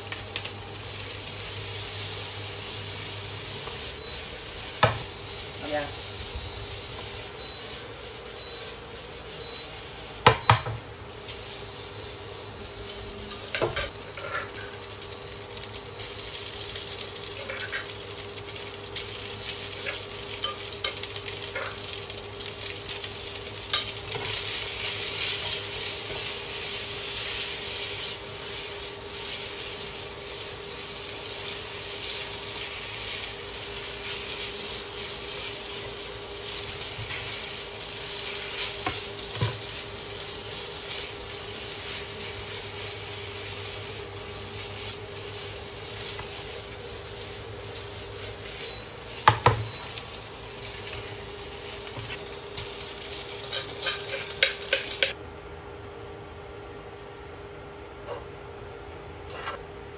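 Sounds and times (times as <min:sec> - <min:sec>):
spaghetti sizzling in a frying pan: 0:00.0 - 0:55.2
spatula scraping a pan: 0:11.2 - 0:14.8, 0:17.4 - 0:18.0, 0:53.4 - 0:55.2.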